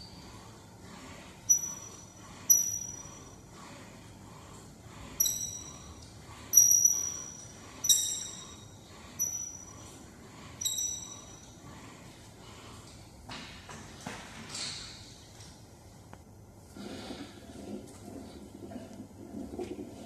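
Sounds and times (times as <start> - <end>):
weight machine metal clink: 1.5 - 3.3, 5.2 - 6.0, 6.6 - 9.8, 10.6 - 11.5.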